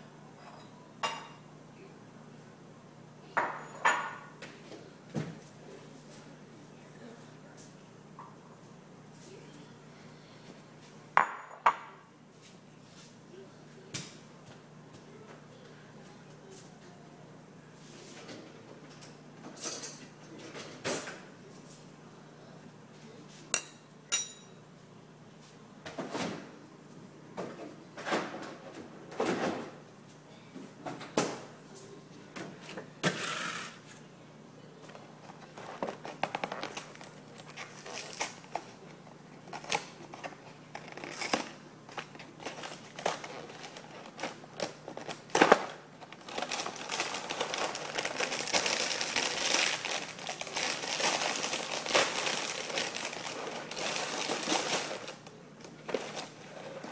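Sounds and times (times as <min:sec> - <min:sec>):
plastic bag crinkling: 0:39.5 - 0:55.2.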